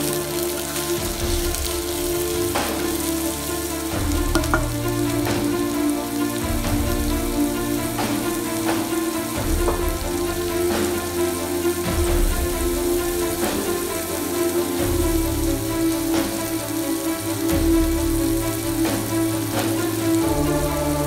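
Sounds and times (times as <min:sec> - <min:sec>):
background music with bass: 0:00.0 - 0:21.0
onions sizzling in oil: 0:00.0 - 0:21.0
wooden spatula stirring: 0:04.2 - 0:04.8.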